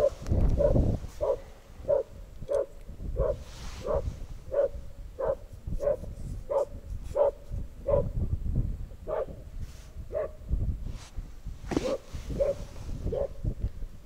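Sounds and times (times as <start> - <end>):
dog barking: 0.0 - 8.2, 9.1 - 9.4, 10.1 - 10.4, 11.8 - 13.4.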